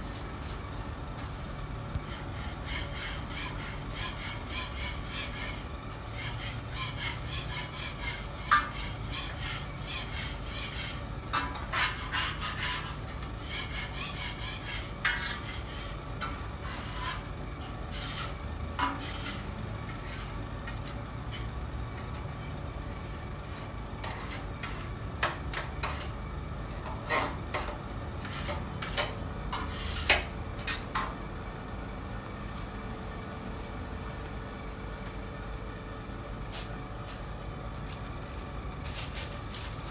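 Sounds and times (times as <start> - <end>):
steady low hum: 0.0 - 39.9
scraping strokes: 1.2 - 26.1, 26.7 - 30.3.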